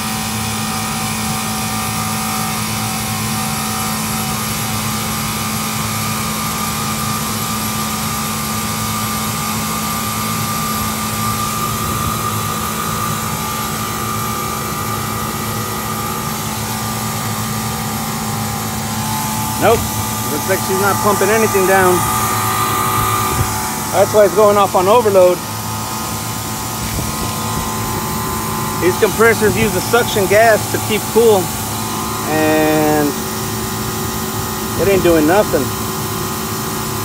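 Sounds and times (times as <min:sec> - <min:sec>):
compressor humming: 0:00.0 - 0:37.0
faint high whine: 0:10.1 - 0:35.8.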